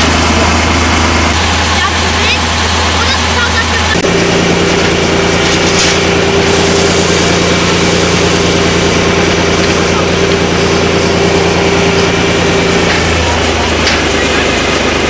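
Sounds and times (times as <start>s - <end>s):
engine droning hum: 0.0s - 15.0s
loud even rush of noise: 0.0s - 15.0s.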